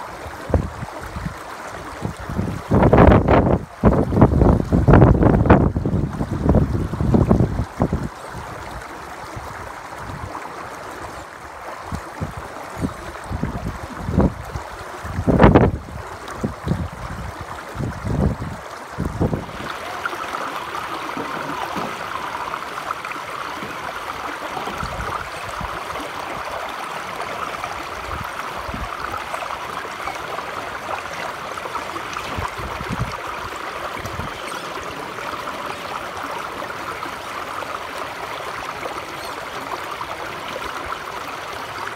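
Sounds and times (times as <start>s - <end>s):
stream running over rocks: 0.0s - 41.9s
wind buffeting microphone: 0.3s - 10.4s, 11.8s - 34.6s.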